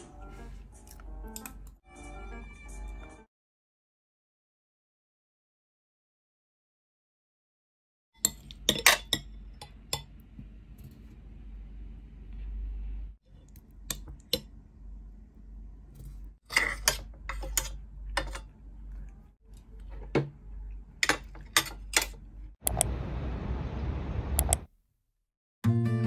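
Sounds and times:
cutlery clinking on plate: 8.2s - 10.1s
low steady hum: 8.3s - 24.6s.

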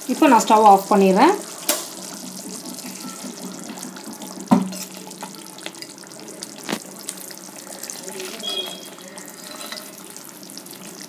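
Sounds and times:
curry bubbling in a pan: 0.0s - 11.0s.

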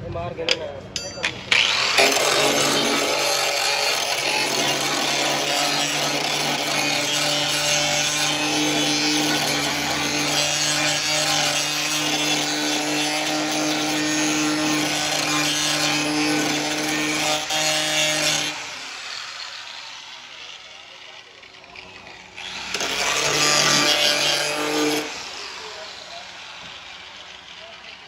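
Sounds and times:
grinder disc rasping metal: 1.0s - 28.0s
angle grinder motor whine: 1.2s - 28.0s.

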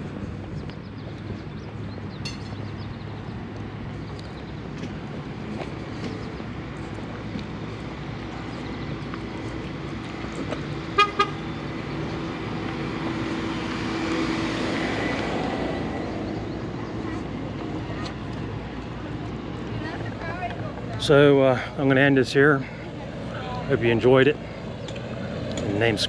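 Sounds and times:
car horn toots: 11.0s - 11.4s.

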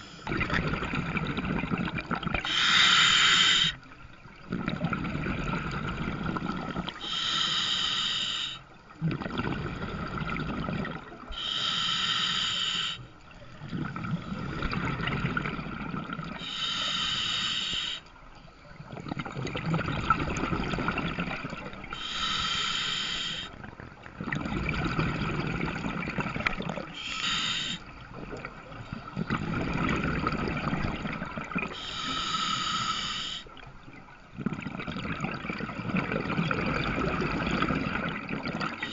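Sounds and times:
regulator inhale hiss: 0.0s - 0.3s, 2.4s - 3.8s, 7.0s - 8.7s, 11.3s - 13.1s, 16.4s - 18.1s, 21.9s - 23.6s, 26.9s - 27.9s, 31.7s - 33.5s
exhaled bubbles rumbling: 0.0s - 2.8s, 3.8s - 7.1s, 8.9s - 11.4s, 13.4s - 16.4s, 18.8s - 22.1s, 23.5s - 27.0s, 27.8s - 31.8s, 33.6s - 38.9s.

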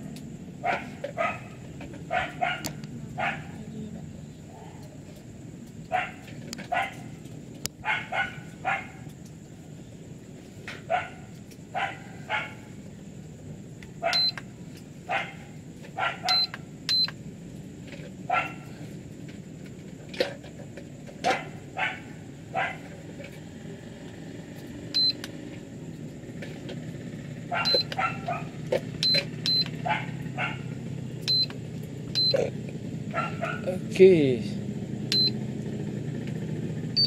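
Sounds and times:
dog barking: 0.6s - 3.7s, 5.9s - 7.2s, 7.8s - 9.1s, 10.8s - 12.7s, 14.0s - 14.4s, 15.1s - 16.5s, 18.3s - 18.8s, 21.3s - 22.9s, 27.5s - 28.6s, 29.8s - 30.8s, 33.1s - 33.7s
charger short high beeps: 35.1s - 35.4s.

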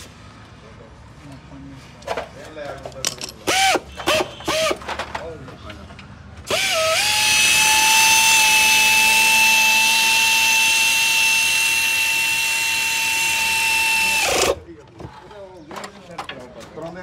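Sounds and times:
pneumatic tool whine: 3.4s - 4.8s, 6.5s - 14.6s.

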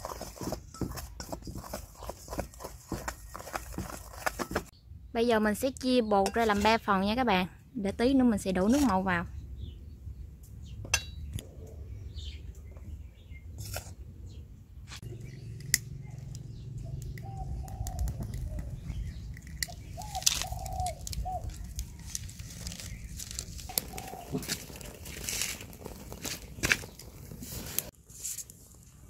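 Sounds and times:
dry leaves crackling in fire: 19.3s - 29.0s.

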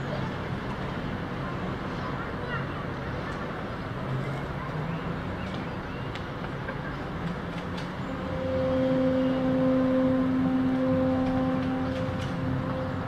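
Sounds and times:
ship's horn blast: 8.1s - 13.0s.

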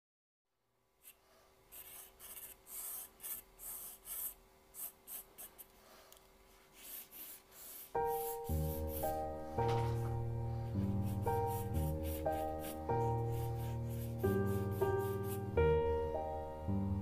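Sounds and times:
pencil scratching on paper: 1.0s - 5.8s, 6.5s - 10.1s, 10.8s - 15.5s.

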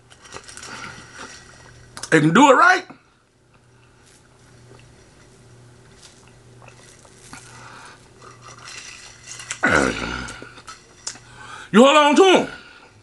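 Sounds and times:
man chewing food: 0.0s - 2.1s, 3.4s - 11.5s
low steady hum: 0.0s - 13.0s.

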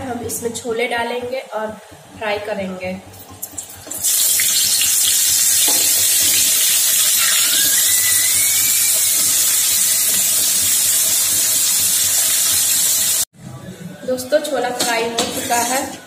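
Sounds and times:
chickpeas sizzling in oil: 4.0s - 13.3s.

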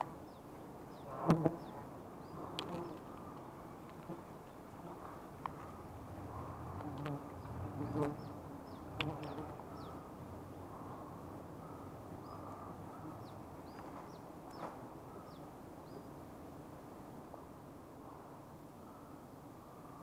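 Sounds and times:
bees buzzing: 1.0s - 3.2s, 4.0s - 10.1s
bird chirping: 7.4s - 16.1s.

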